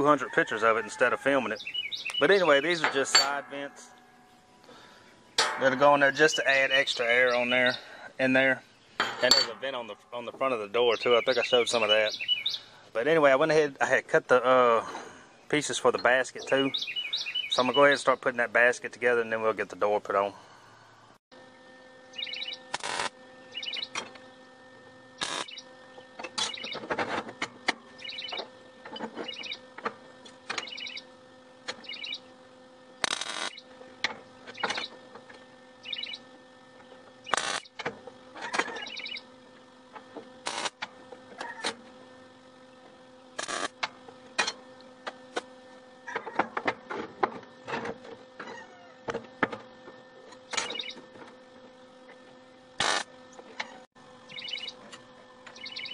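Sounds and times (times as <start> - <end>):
steady low hum: 0.0 - 55.9.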